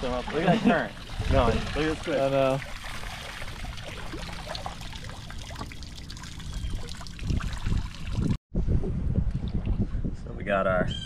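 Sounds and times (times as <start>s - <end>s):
floodwater trickling and flowing: 0.0s - 8.4s.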